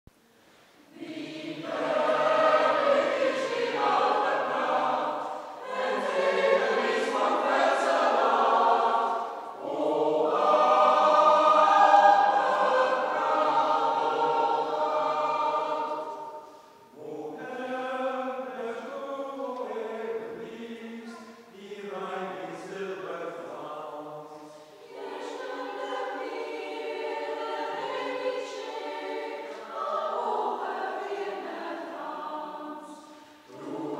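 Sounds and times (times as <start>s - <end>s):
mixed choir singing: 0.9s - 33.9s.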